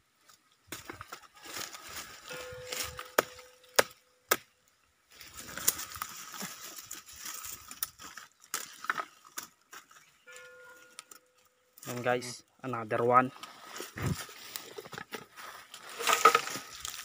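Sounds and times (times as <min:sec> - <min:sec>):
dry leaves rustling: 0:00.2 - 0:03.9, 0:05.1 - 0:12.2, 0:13.2 - 0:17.0
knife chopping vine stems: 0:02.8 - 0:04.5.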